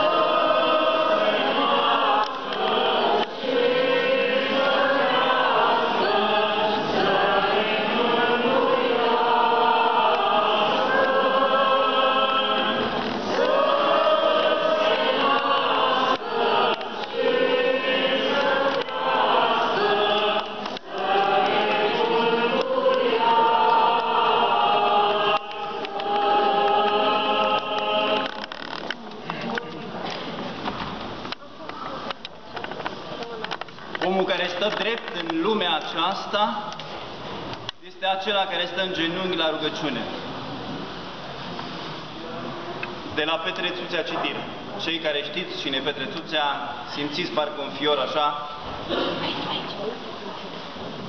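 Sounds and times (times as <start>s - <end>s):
choir singing a chant: 0.0s - 28.8s.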